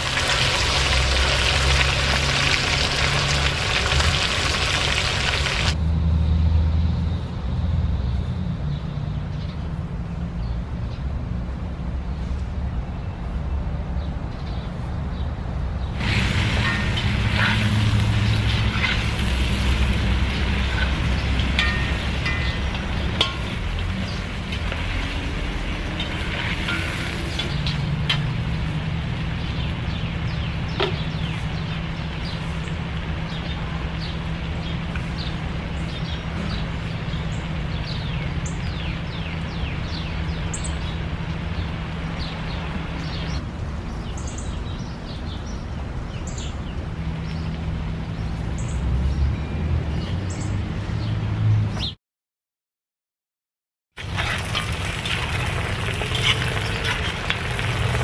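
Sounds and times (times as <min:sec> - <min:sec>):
birds chirping: 0:54.2 - 0:58.0.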